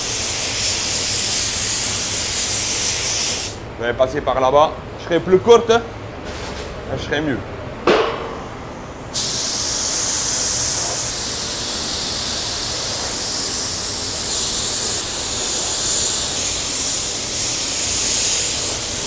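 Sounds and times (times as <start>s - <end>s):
paint spray gun hissing: 0.0s - 3.6s, 8.7s - 19.0s.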